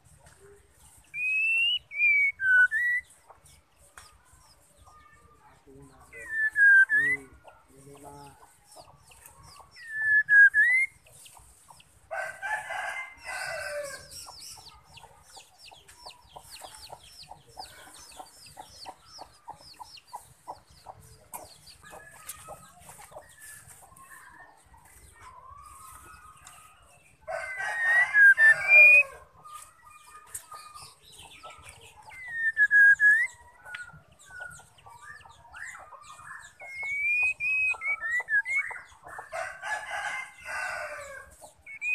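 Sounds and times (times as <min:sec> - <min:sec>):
harsh bird calls: 0:01.0 - 0:11.6, 0:12.4 - 0:41.9
bird swooping whistles: 0:09.8 - 0:11.0.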